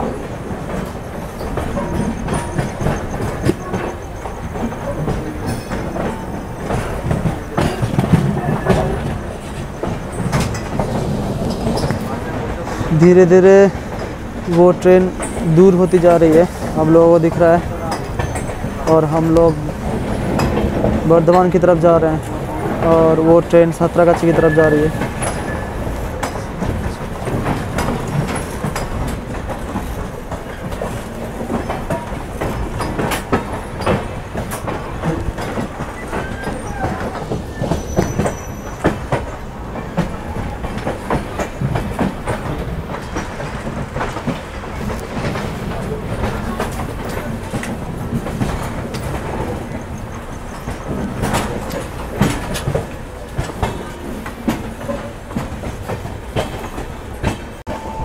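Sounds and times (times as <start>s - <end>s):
wheels clattering over rail joints: 0.0s - 57.9s
train wheels rumbling: 0.0s - 58.0s
faint wheel squeal: 24.4s - 26.0s, 36.0s - 38.9s.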